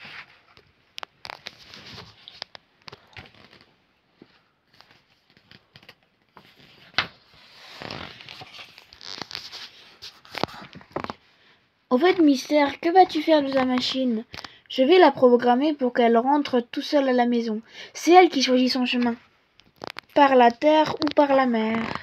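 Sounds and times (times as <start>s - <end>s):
page turning: 0.0s - 11.2s, 19.0s - 21.4s
paper pages rustling: 0.0s - 11.2s, 18.9s - 21.8s.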